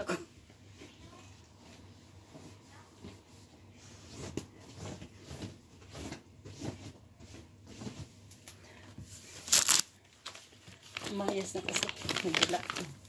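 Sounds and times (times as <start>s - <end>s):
cloth wiping a surface: 0.6s - 8.2s.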